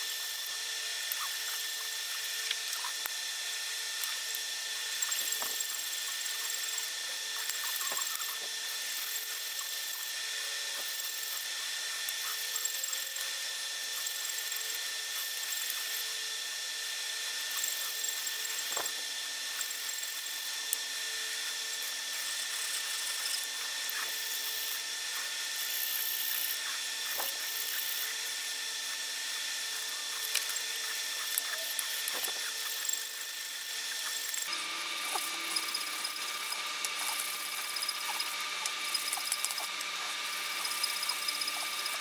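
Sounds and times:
high-pitched whine: 21.3 - 42.0.

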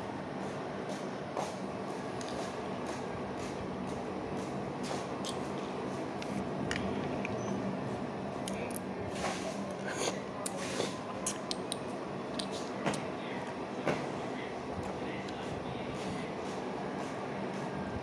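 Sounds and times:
steady background noise: 0.0 - 18.0
sucking and chewing: 9.7 - 13.1.

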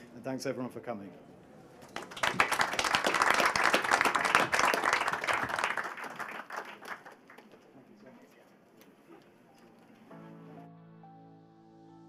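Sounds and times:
audience applauding: 1.8 - 7.7.

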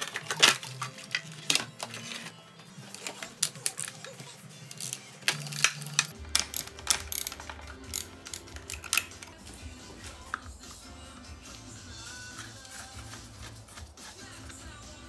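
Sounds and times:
hand tools clicking and clacking: 0.0 - 9.4
background music: 0.0 - 15.0.

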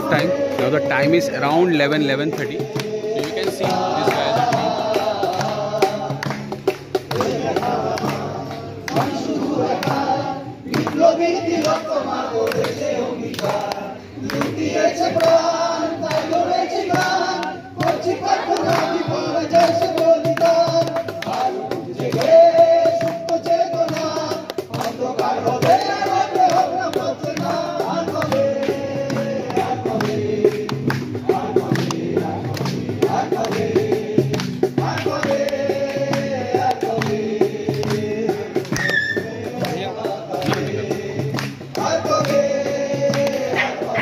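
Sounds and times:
singer on loudspeaker: 0.0 - 2.7, 43.6 - 44.0
crowd singing together: 0.0 - 44.0
hand percussion: 0.0 - 44.0.

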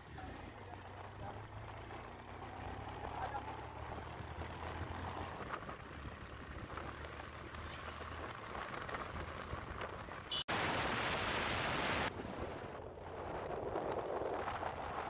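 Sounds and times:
wind and road hiss: 4.1 - 15.0.

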